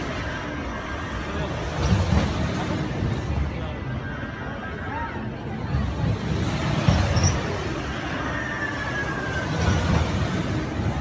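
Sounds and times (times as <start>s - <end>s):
amusement ride rumbling whoosh: 0.0s - 11.0s.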